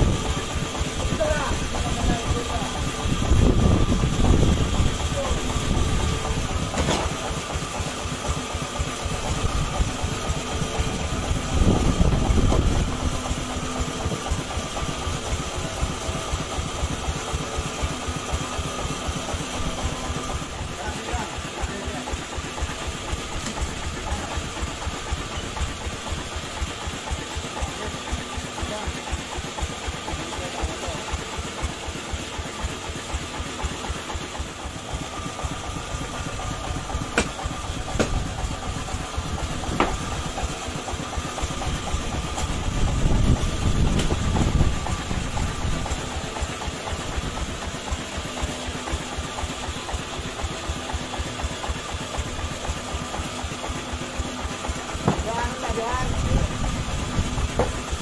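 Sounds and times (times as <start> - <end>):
sawmill engine idling: 0.0 - 58.0
sharp knocks: 37.1 - 38.2.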